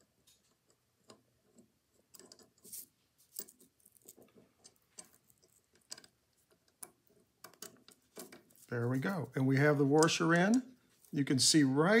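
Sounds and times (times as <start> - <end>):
light metal clicks and scrapes: 0.2 - 9.3.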